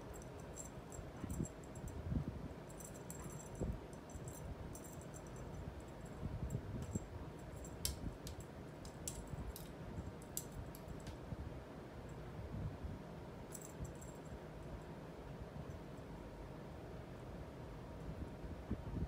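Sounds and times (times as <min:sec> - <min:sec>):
cat toy jingling: 0:02.6 - 0:07.9.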